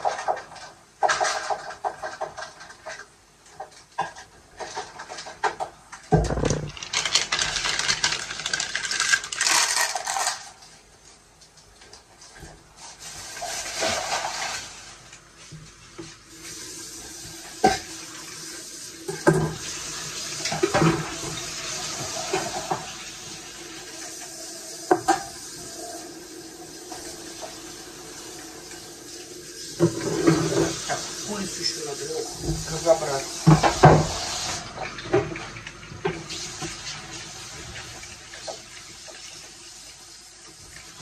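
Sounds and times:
tap water running into sink: 0.0 - 10.4, 13.0 - 41.0
clinks and knocks in sink: 3.6 - 6.8.

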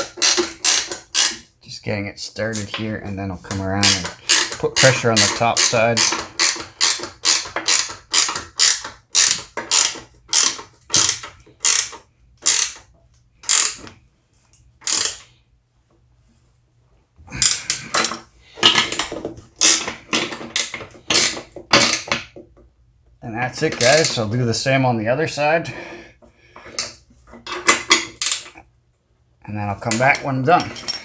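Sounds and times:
ratcheting wrench clicking: 0.0 - 1.4, 3.8 - 13.9, 14.8 - 15.3, 18.9 - 22.1.

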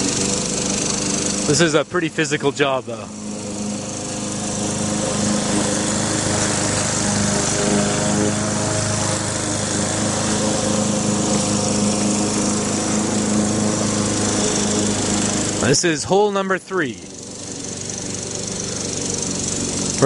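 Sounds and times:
drilling rig engine hum with hiss: 0.0 - 20.0.

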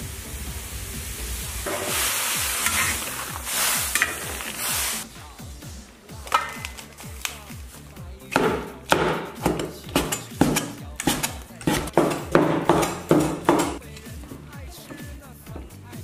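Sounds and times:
cleaver chopping on wooden board: 8.3 - 13.8.

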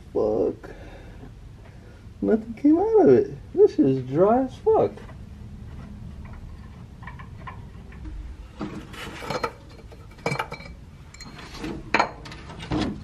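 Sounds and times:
low steady hum: 0.0 - 13.0
small car parts clinking: 6.2 - 13.0.

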